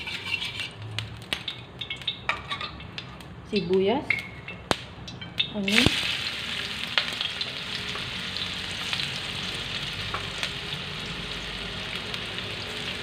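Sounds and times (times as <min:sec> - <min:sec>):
onion sizzling in oil: 0:00.0 - 0:13.0
small crackles of frying: 0:00.0 - 0:13.0.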